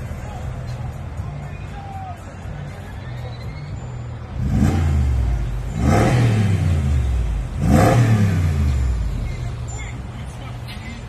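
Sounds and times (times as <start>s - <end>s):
car engine revving: 4.3s - 9.6s.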